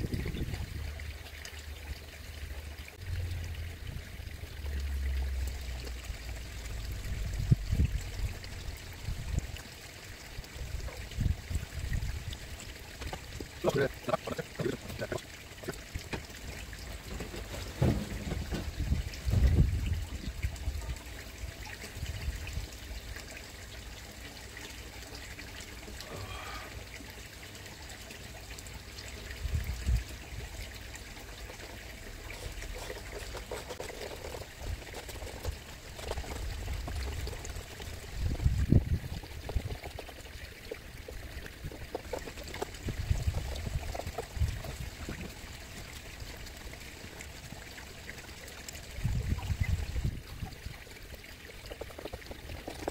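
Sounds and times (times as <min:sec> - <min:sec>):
water trickling in a pond: 0:00.0 - 0:52.9
dull low thumps: 0:17.1 - 0:20.1.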